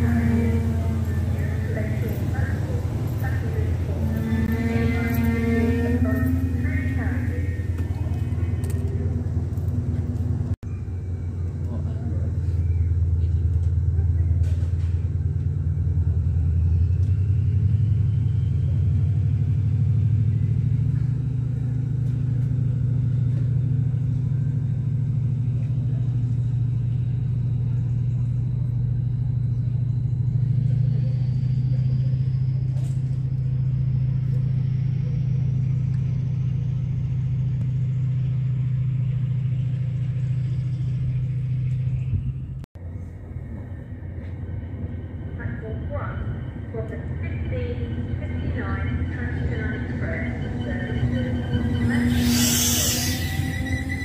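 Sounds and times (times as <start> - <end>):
diesel locomotive deep rumble: 0.0 - 54.0
faint high whine rising: 47.5 - 54.0.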